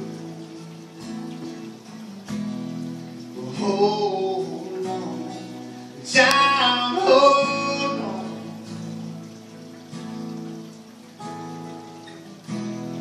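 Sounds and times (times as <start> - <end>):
acoustic guitars playing: 0.0 - 13.0
man singing: 3.4 - 8.7.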